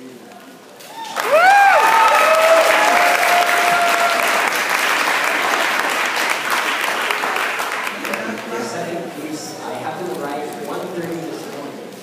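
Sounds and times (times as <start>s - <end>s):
crowd cheering and shouting: 0.8s - 4.6s
audience applause: 1.0s - 9.0s.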